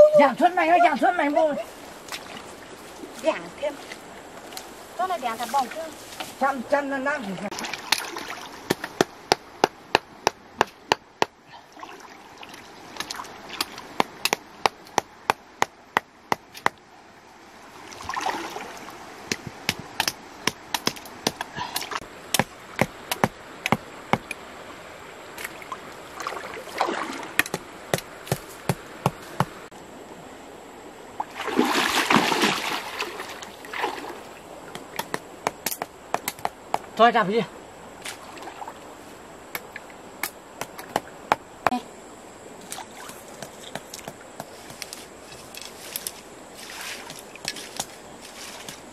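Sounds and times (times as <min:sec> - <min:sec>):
stream water splashing: 0:00.0 - 0:48.9
sharp knocks of wooden stakes: 0:07.8 - 0:11.4, 0:13.0 - 0:16.8, 0:19.2 - 0:24.4, 0:27.4 - 0:29.6, 0:34.7 - 0:36.9, 0:39.5 - 0:41.8, 0:42.7 - 0:46.2, 0:47.0 - 0:48.8.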